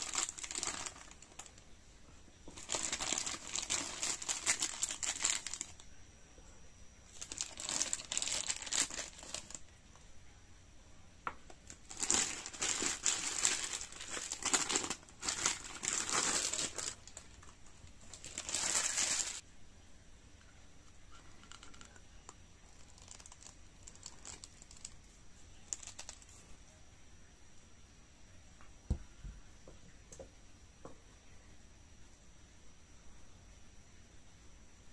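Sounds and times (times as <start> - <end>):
plastic bags crinkling: 0.0 - 1.6, 2.5 - 5.8, 7.1 - 9.7, 11.5 - 19.4, 22.7 - 26.4.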